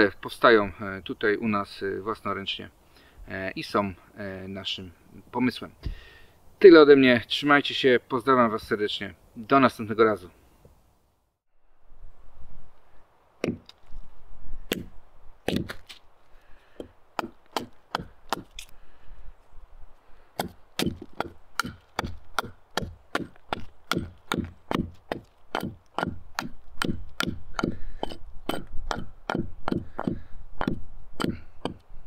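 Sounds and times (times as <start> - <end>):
hatchet chopping wood: 13.4 - 13.8, 14.7 - 14.9, 15.5 - 16.0, 16.8 - 18.7, 20.4 - 31.9.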